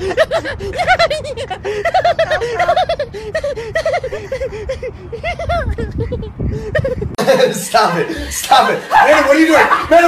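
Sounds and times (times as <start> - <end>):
person giggling: 0.0 - 7.5.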